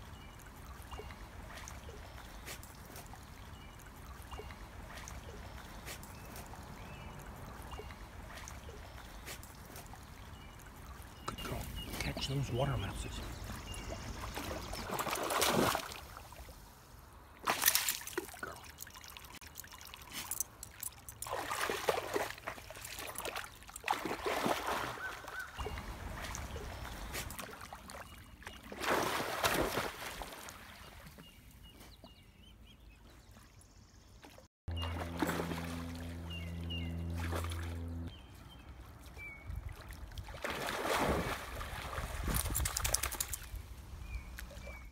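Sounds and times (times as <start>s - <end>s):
dog splashing in water: 13.6s - 16.2s, 17.4s - 28.1s, 28.7s - 30.9s, 34.7s - 37.8s, 39.8s - 43.5s
steady low hum: 34.7s - 38.3s.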